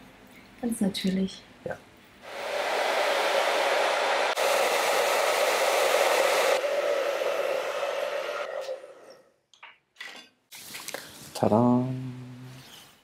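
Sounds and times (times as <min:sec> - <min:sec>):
hair dryer blowing: 0:02.2 - 0:09.2.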